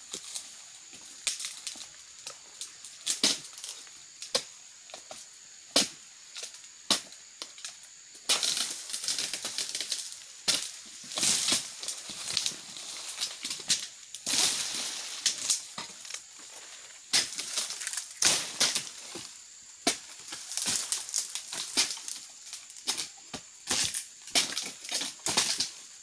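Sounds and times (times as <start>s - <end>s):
sickle hacking palm fronds: 8.3s - 25.8s
dry fronds rustling: 8.4s - 19.4s, 20.0s - 22.9s.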